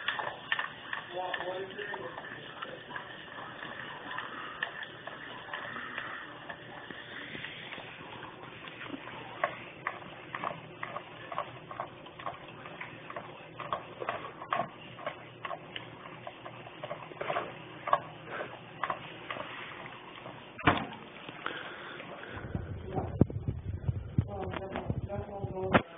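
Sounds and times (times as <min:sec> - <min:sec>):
dog licking from plastic bowl: 0:00.0 - 0:20.6.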